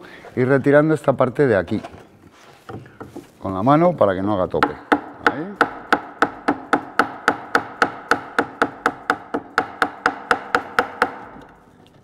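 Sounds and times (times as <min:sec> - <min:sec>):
mallet tapping wood: 0:04.6 - 0:11.6.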